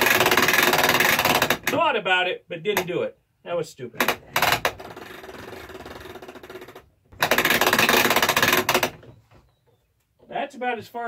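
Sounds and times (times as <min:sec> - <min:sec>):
ratchet winch clicking rapidly: 0:00.0 - 0:01.8, 0:04.0 - 0:09.0.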